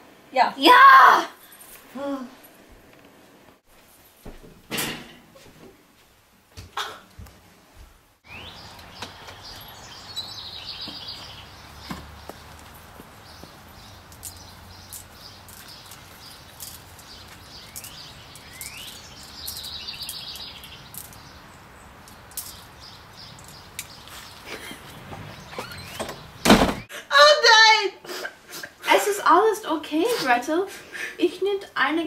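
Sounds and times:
outdoor ambience: 0.0s - 32.0s
songbirds chirping: 8.2s - 26.9s.

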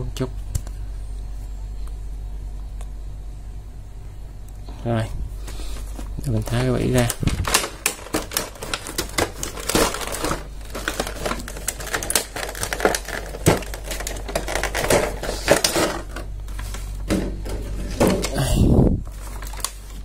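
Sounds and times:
plastic blister packaging crinkling: 5.7s - 20.0s.

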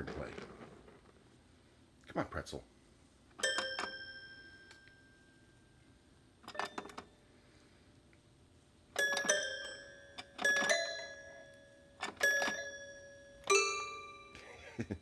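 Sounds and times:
toy piano notes: 9.0s - 14.4s.

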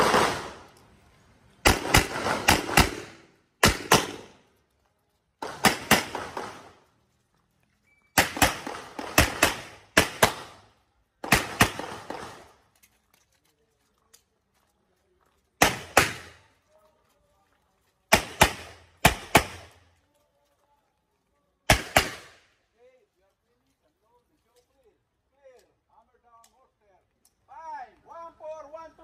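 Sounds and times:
pistol shots in pairs: 0.0s - 0.7s, 1.6s - 4.4s, 5.4s - 6.8s, 8.1s - 12.6s, 15.6s - 16.4s, 18.1s - 19.8s, 21.7s - 22.5s.

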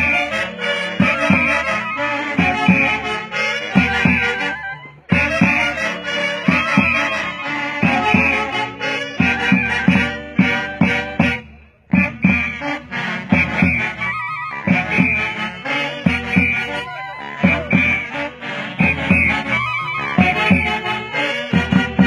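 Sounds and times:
saxophones and clarinets melody: 0.0s - 22.0s
bass drum beat: 17.4s - 18.0s.

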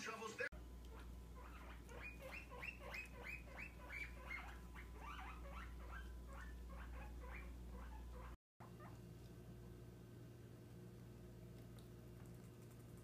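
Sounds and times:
guinea pig squeaking: 0.9s - 9.0s.

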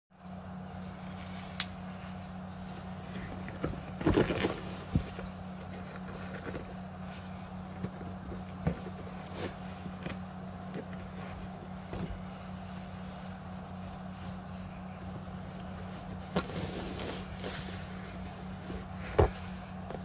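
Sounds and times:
steady low hum: 0.2s - 20.0s
rubber boots flexing and rubbing: 2.6s - 20.0s.

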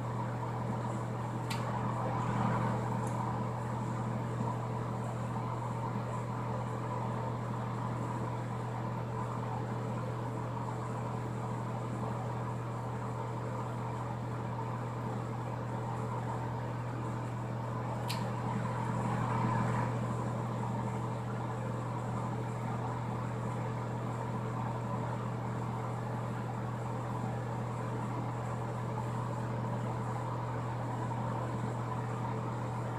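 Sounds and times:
ventilation fan humming: 0.0s - 32.9s
faint click: 1.4s - 1.7s.

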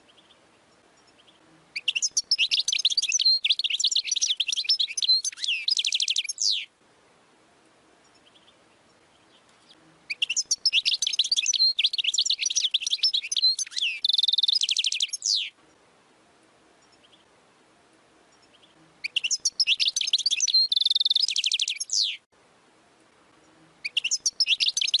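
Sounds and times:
goldfinch twittering song: 0.1s - 6.7s, 8.0s - 15.6s, 18.3s - 22.2s, 23.8s - 25.0s.

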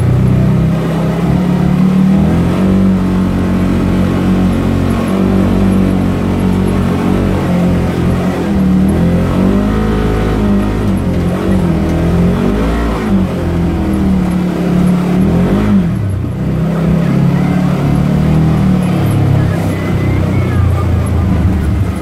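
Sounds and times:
engine revving up and down: 0.0s - 22.0s.

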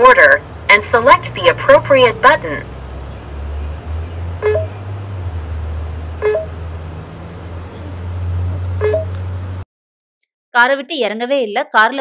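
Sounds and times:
car idling: 0.0s - 9.6s
two-note electronic beeps: 4.4s - 4.8s, 6.2s - 6.6s, 8.8s - 9.1s.

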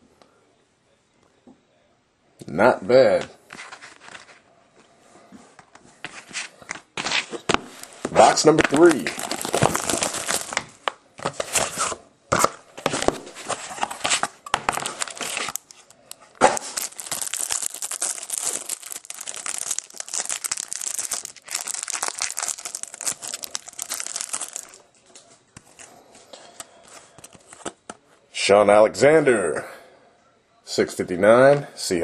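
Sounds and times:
plastic wrapping crinkling: 6.1s - 26.0s.

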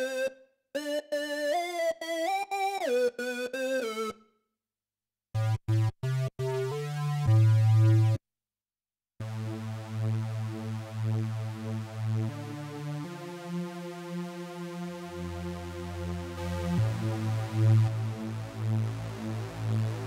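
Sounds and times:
synthesizer lead long notes: 9.3s - 20.0s
synthesizer lead staccato notes: 16.4s - 20.0s.

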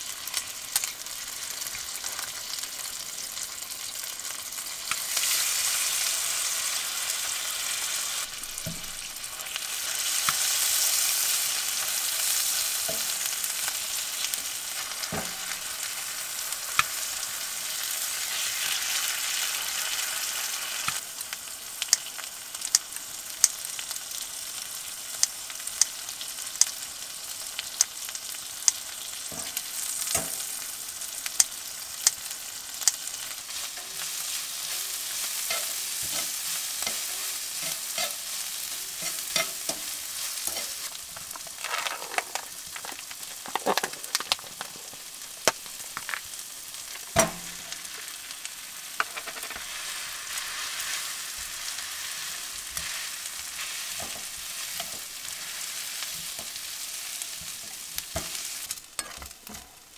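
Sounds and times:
meat sizzling in frying pan: 0.0s - 59.9s
wooden spatula scraping pan: 38.9s - 45.0s.

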